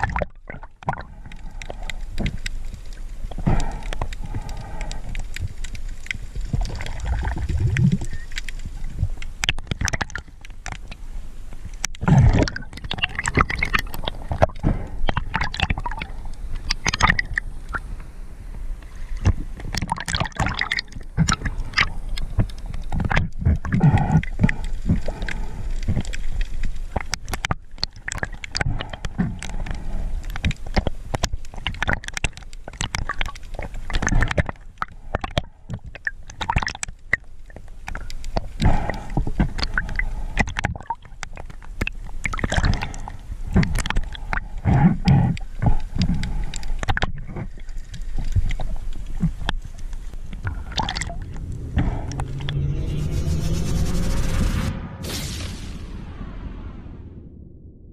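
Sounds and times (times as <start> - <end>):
water gurgling and rushing: 0.0 - 11.0, 11.8 - 18.0, 18.8 - 35.4, 48.2 - 57.0
underwater clicks: 0.0 - 18.1, 18.8 - 52.6.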